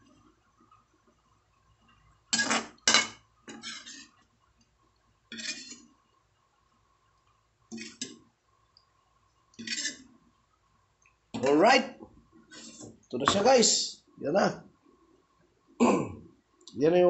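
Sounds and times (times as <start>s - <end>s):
spoon scraping a metal pan: 2.4s - 4.2s, 5.3s - 5.8s, 7.8s - 8.1s, 9.6s - 10.0s.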